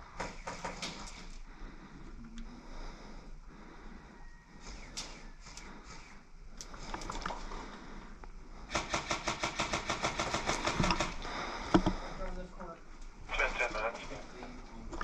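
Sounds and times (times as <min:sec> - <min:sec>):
airsoft gun rapid shots: 0:00.1 - 0:01.1, 0:08.7 - 0:11.2.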